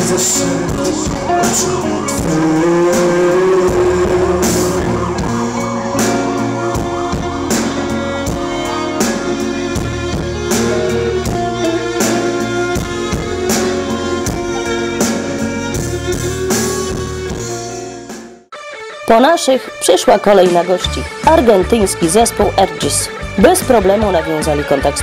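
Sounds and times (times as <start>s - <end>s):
steady drum strokes: 0.0s - 18.2s
live rock band playing: 0.0s - 25.0s.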